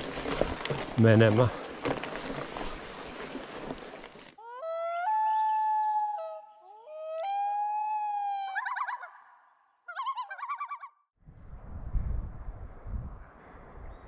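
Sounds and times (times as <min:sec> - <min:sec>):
bike riding on a trail: 0:00.0 - 0:04.4.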